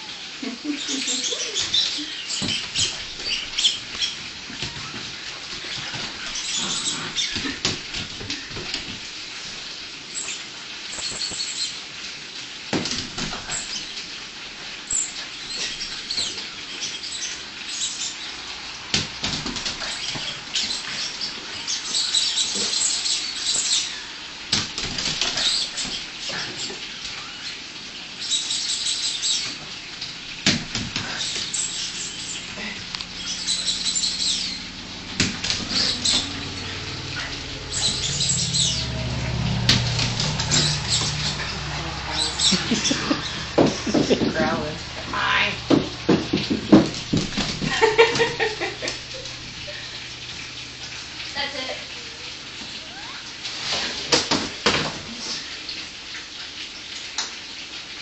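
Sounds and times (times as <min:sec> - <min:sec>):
balls knocking on floor: 0:43.4 - 0:44.7, 0:45.6 - 0:48.3.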